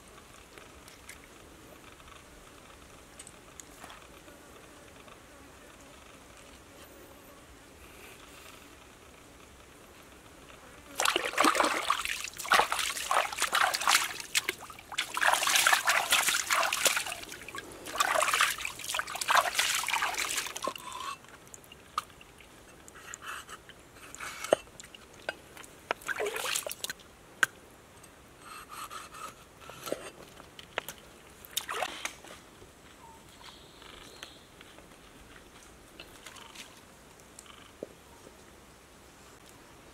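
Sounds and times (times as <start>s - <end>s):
water splashing and sloshing: 11.0s - 22.6s, 24.5s - 27.0s, 30.8s - 32.2s.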